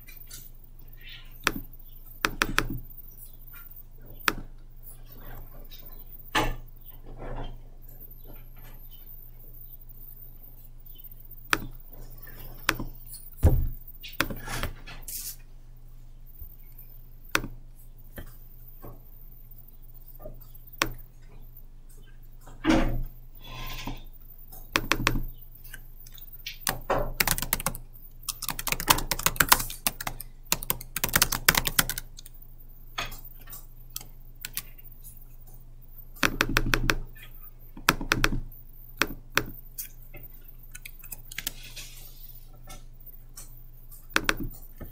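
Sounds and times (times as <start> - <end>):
low steady hum: 0.0 - 44.9
computer keyboard typing: 1.4 - 2.9, 24.7 - 25.3, 26.0 - 32.4, 33.9 - 34.8, 36.2 - 37.3, 37.9 - 38.4, 40.7 - 41.7, 43.4 - 44.9.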